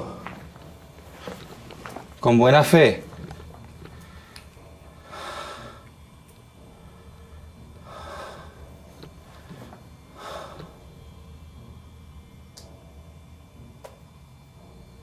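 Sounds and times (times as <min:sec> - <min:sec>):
person breathing: 0:03.9 - 0:05.9, 0:06.7 - 0:11.0.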